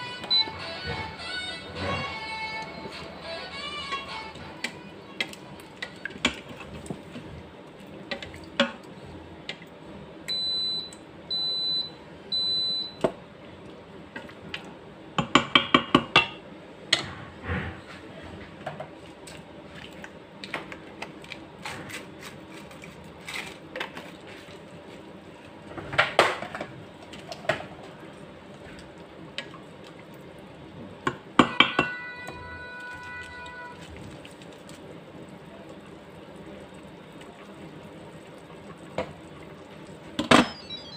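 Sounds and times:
short high electronic beeps: 40.4 - 40.9.

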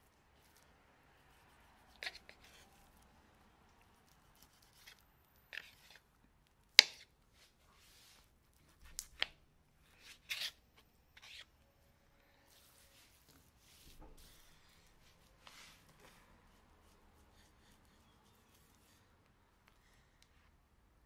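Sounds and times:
knife scraping through fat: 10.0 - 10.6.

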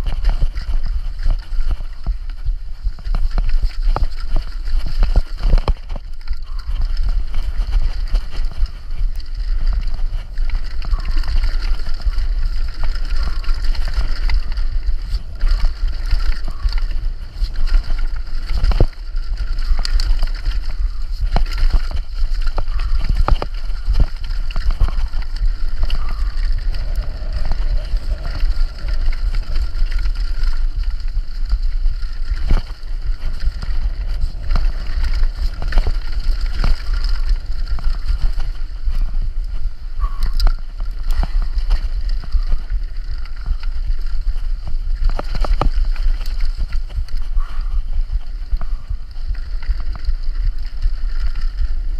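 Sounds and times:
bike rattling on rocky trail: 0.0 - 51.9
wind rumbling on microphone: 0.0 - 51.9.

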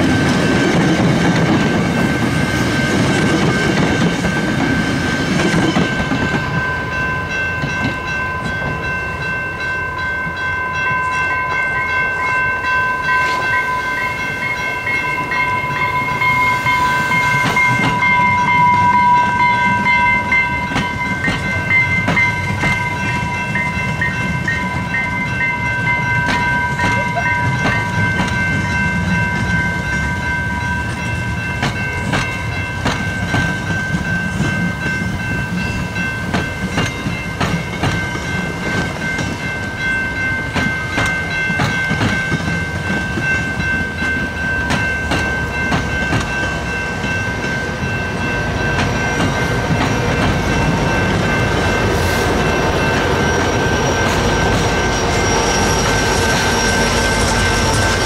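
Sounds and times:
diesel locomotive engine rumble: 0.0 - 58.0
level crossing bell ringing: 5.9 - 58.0
train wheels clicking over rail joints: 15.4 - 58.0.

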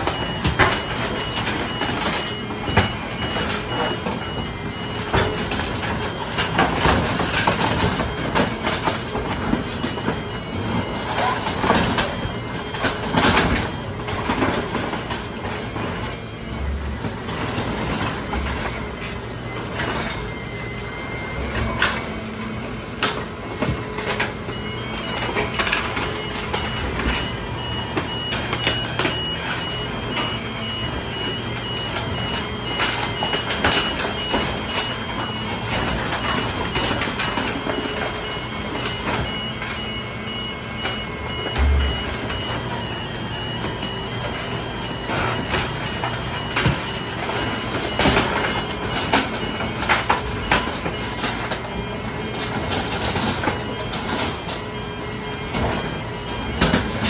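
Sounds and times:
engine and hydraulics running: 0.0 - 57.0
rapid warning beeper: 0.0 - 57.0
drum crunching debris: 40.8 - 43.0.

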